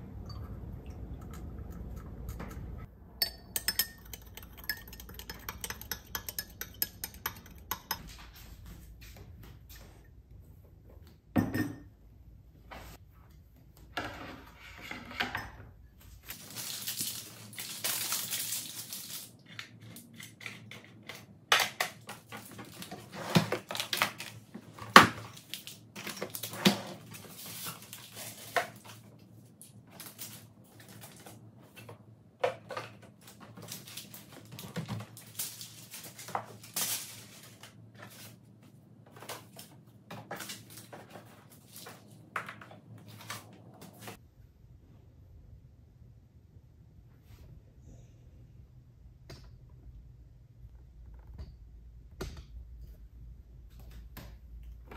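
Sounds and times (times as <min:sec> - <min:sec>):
papers and plastic rustling: 0:16.1 - 0:44.2.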